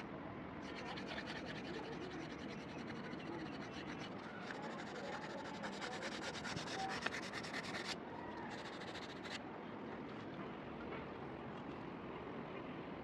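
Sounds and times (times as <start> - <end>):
sandpaper scratching on wood: 0.7 - 8.0.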